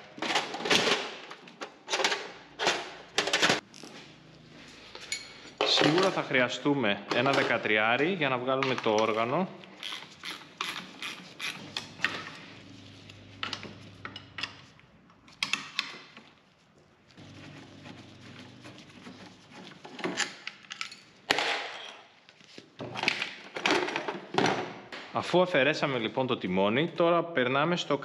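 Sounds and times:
socket wrench ratcheting: 9.8 - 11.6.

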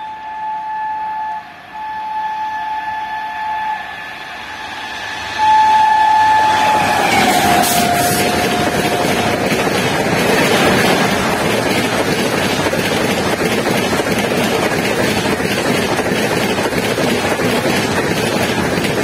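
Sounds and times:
train coaches rushing past: 2.7 - 19.0.

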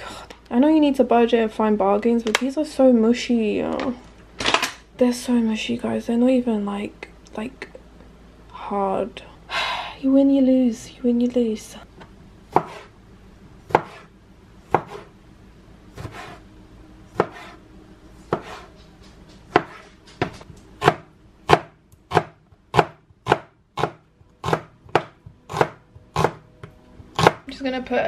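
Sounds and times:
knife chopping on plastic board: 12.5 - 12.9, 13.7 - 14.1, 14.7 - 15.1, 16.0 - 16.4, 17.1 - 17.6, 18.3 - 18.8, 19.4 - 27.4.

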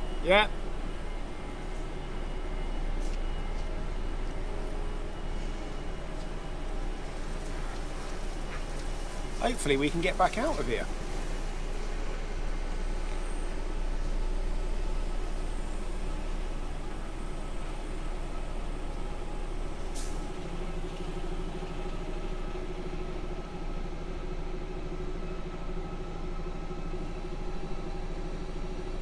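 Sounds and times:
truck diesel engine running: 0.0 - 29.0
air brake hiss: 19.9 - 20.2.

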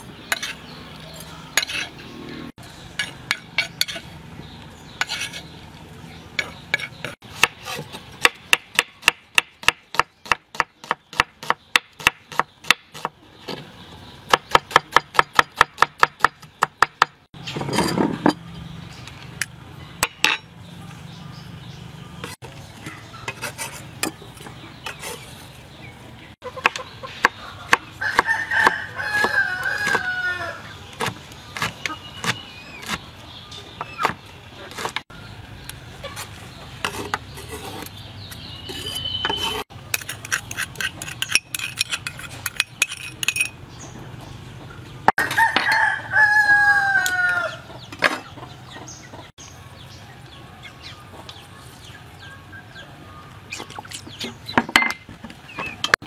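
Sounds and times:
rooster crowing: 28.0 - 30.7, 45.2 - 47.6.

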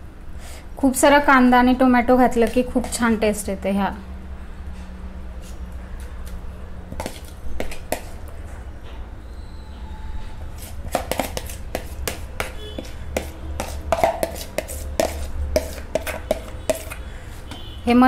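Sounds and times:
spoon scraping plastic bowl: 2.4 - 3.2, 6.9 - 8.3, 10.4 - 17.8.

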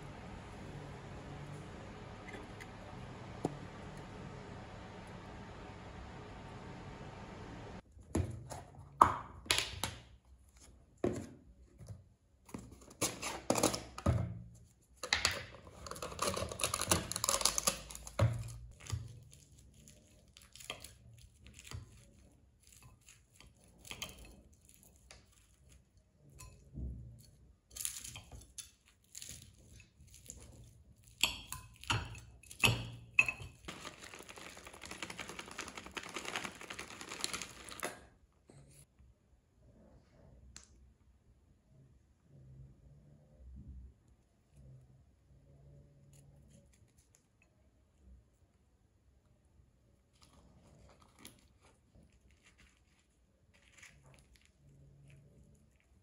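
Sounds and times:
plastic packaging crinkling: 33.7 - 38.0.

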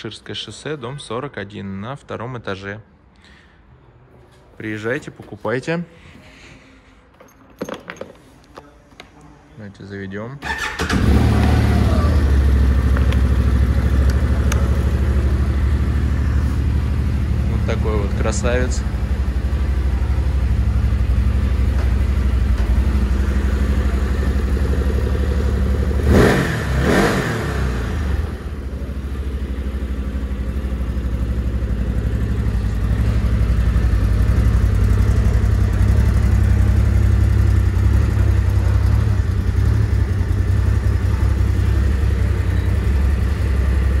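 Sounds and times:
quad engine idling: 10.5 - 26.2, 27.7 - 44.0.

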